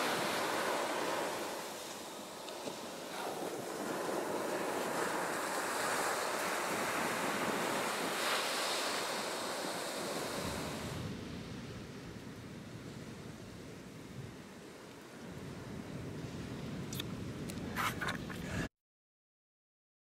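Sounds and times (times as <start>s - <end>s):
ocean surf breaking: 0.0s - 13.9s
wind on microphone: 0.0s - 18.7s.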